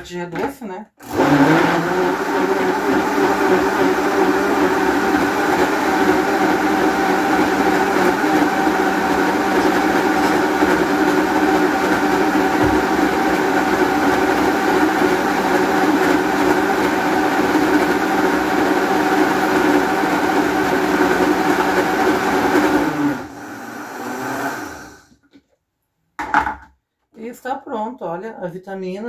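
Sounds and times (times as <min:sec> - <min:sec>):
blender running: 0:01.0 - 0:25.1
knock: 0:12.6 - 0:12.8, 0:26.2 - 0:26.7.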